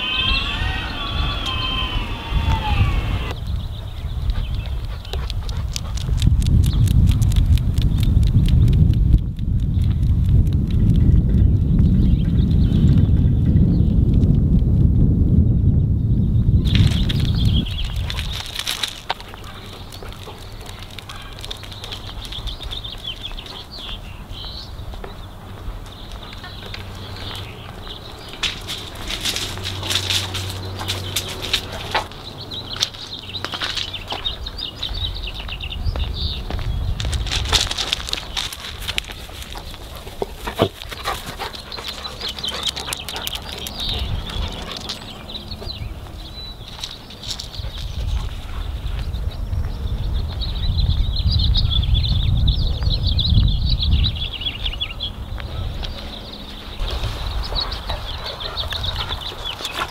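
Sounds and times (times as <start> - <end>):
birds chirping and singing: 0.0 - 7.1, 9.7 - 14.2, 15.5 - 59.9
small clicks and rustles: 16.7 - 23.4.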